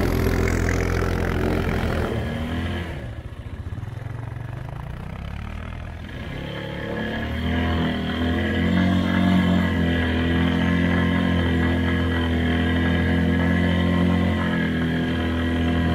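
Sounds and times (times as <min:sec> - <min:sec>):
atv engines droning: 0:00.0 - 0:15.9.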